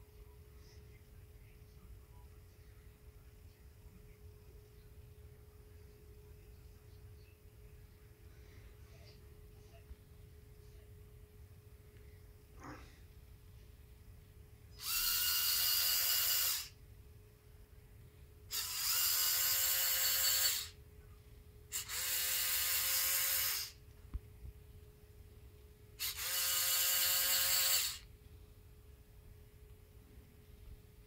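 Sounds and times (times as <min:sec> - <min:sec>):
toy motor whining through gears: 0:14.8 - 0:16.8, 0:18.5 - 0:20.8, 0:21.7 - 0:23.8, 0:26.0 - 0:28.1.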